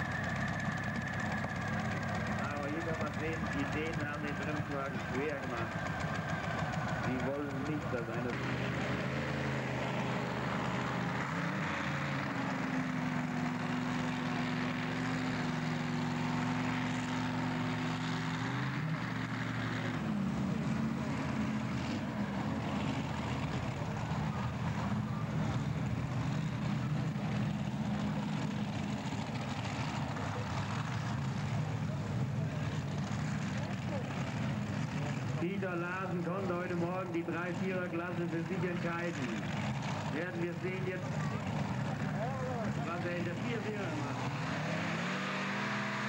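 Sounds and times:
tractor engine running at low revs: 0:00.0 - 0:46.0.

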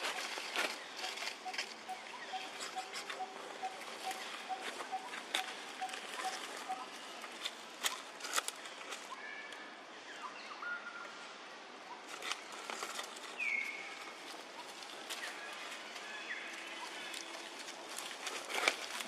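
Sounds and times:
high chirping calls: 0:00.1 - 0:07.2
rustling: 0:12.1 - 0:19.0.

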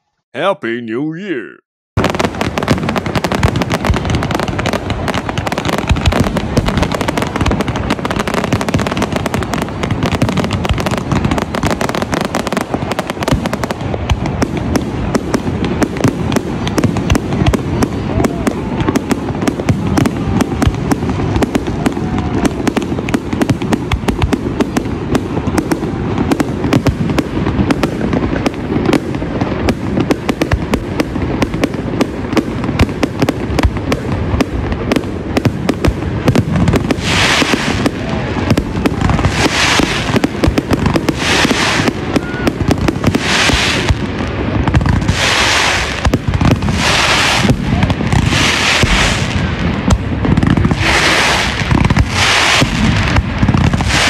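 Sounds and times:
fireworks bangs: 0:00.4 - 0:54.0
hissing firework crackles: 0:02.0 - 0:54.0.

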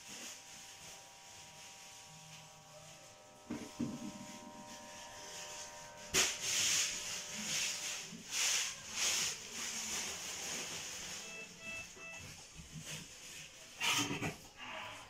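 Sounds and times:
short beeps: 0:11.2 - 0:12.3.

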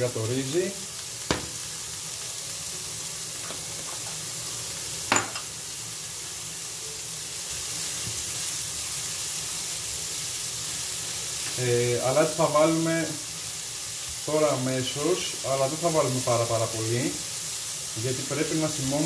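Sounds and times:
vegetables sizzling in a frying pan: 0:00.0 - 0:19.0.

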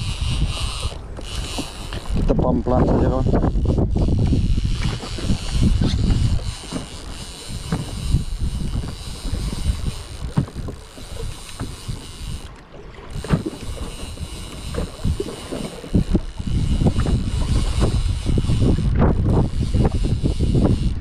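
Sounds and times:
water moving around boat: 0:00.0 - 0:21.0
wind rumbling on microphone: 0:00.0 - 0:21.0
knocks on boat: 0:07.6 - 0:08.0.

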